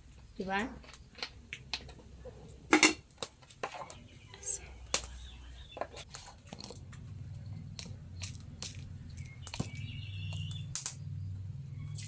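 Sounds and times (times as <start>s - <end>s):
firewood crackling and popping: 0.0s - 4.1s, 4.9s - 12.0s
low steady fire rumble: 6.2s - 12.0s.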